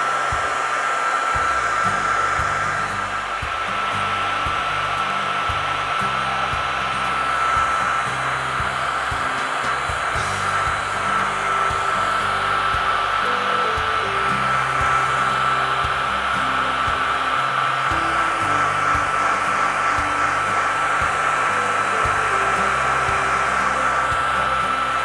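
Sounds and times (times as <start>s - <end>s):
hair dryer blowing: 0.0s - 25.0s.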